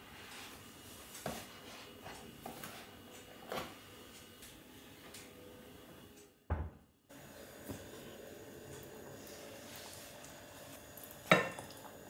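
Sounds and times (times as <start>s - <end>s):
cupboard door shutting: 6.5s - 6.8s.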